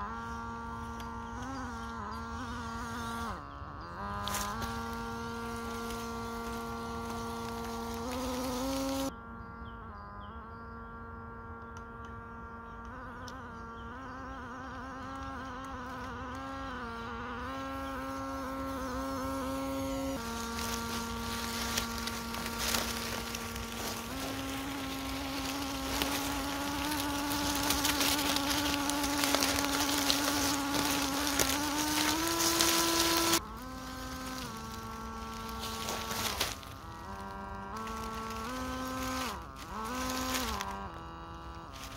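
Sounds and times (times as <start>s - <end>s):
dry leaves crackling under tyres: 0.0s - 9.1s, 17.7s - 41.9s
toy truck electric motor whining: 15.9s - 41.9s.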